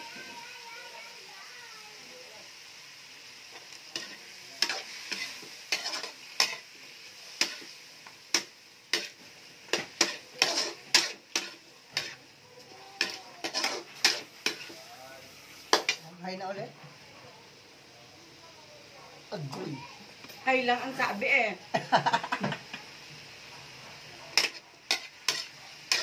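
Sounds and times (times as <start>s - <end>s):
food sizzling: 0.0s - 26.0s
metal ladle scraping a wok: 9.0s - 12.2s, 13.0s - 14.7s, 24.4s - 26.0s.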